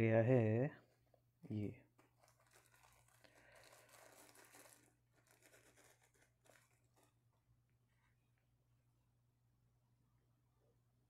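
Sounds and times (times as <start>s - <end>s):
tissue paper rustling: 1.9s - 7.3s.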